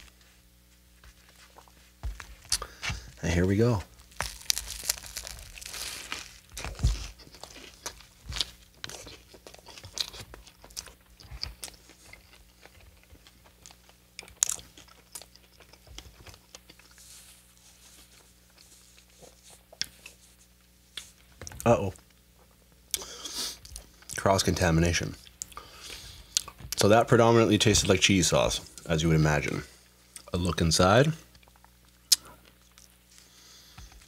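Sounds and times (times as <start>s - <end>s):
crunchy chewing: 3.8s - 21.2s.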